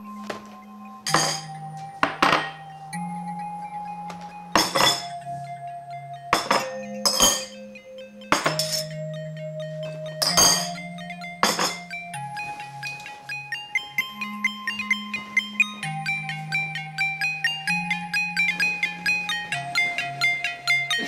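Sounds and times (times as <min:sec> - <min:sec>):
background music: 0:00.0 - 0:21.0
dishes clinking on glass: 0:01.1 - 0:02.6, 0:04.6 - 0:05.2, 0:06.3 - 0:07.6, 0:08.3 - 0:08.9, 0:10.2 - 0:10.8, 0:11.4 - 0:11.9.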